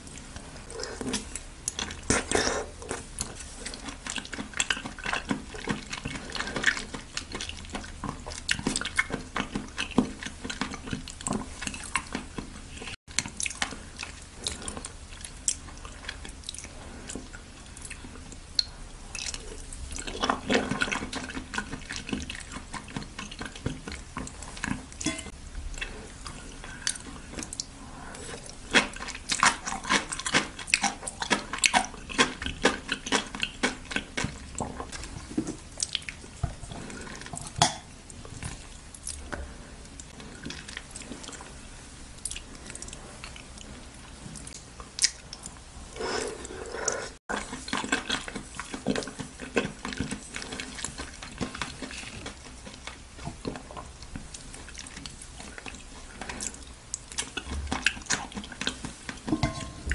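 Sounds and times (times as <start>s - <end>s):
wet chewing: 0.0s - 59.9s.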